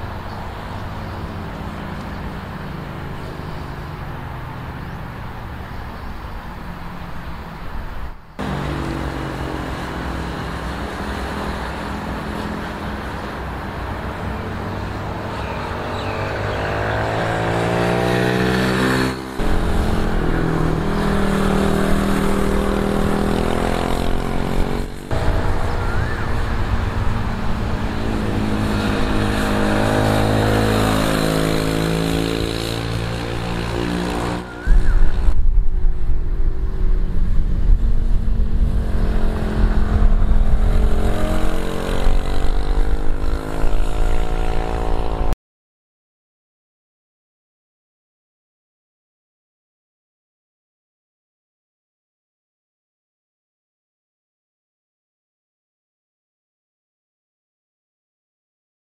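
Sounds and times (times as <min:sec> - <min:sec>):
wind buffeting: 0:07.1 - 0:45.2
motorcycle engine revving: 0:08.4 - 0:45.4.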